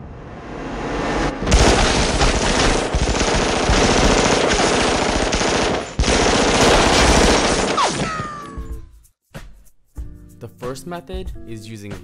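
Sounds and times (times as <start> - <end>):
rapid gunfire: 1.5 - 8.3.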